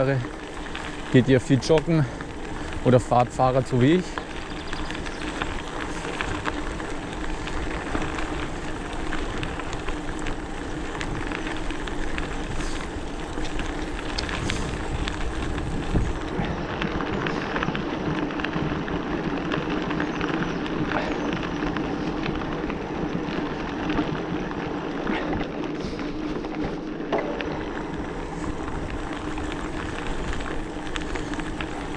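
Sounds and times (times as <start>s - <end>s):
bike rattling over bumps: 0.0s - 31.9s
bike tyres crunching on dirt: 0.0s - 31.9s
electric motor hum: 4.1s - 31.9s.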